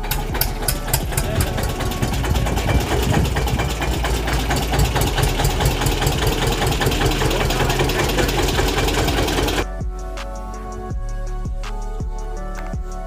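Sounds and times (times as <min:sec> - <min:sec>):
tractor engine idling: 0:00.0 - 0:09.6.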